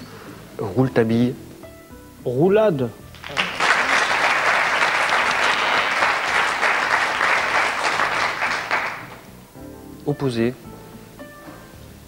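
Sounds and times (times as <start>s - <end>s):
audience applauding: 3.1s - 9.2s.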